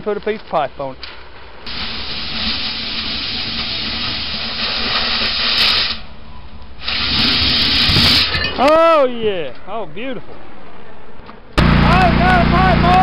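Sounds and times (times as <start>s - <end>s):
cutting torch hissing: 1.7s - 6.1s, 6.8s - 8.3s.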